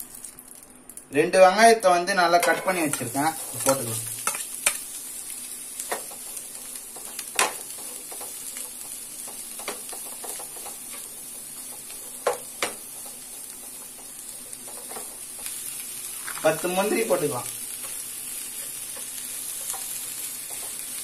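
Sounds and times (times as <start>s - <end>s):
onions sizzling in butter: 2.2s - 21.0s
spatula tapping and scraping pan: 2.4s - 4.9s, 5.8s - 15.6s, 17.8s - 21.0s.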